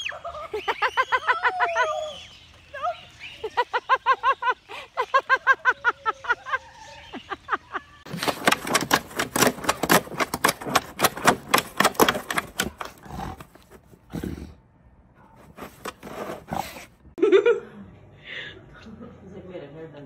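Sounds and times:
snow crunching on plastic shovel: 8.1 - 13.8, 15.4 - 16.9.

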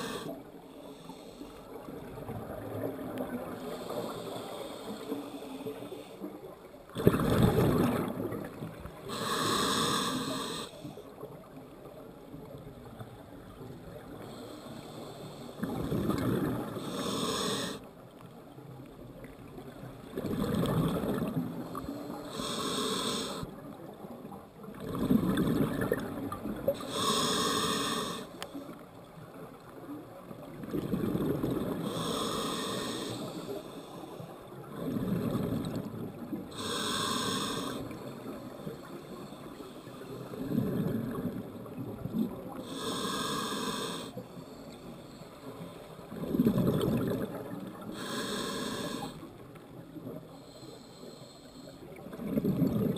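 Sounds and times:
diver inhaling through regulator: 0.0 - 1.7, 3.5 - 6.3, 9.1 - 11.0, 14.2 - 17.9, 20.6 - 23.5, 26.8 - 28.7, 31.8 - 35.8, 36.5 - 40.5, 42.5 - 46.0, 47.8 - 49.3, 50.3 - 52.0
exhaled bubbles bursting: 7.0 - 8.6, 46.2 - 47.6.

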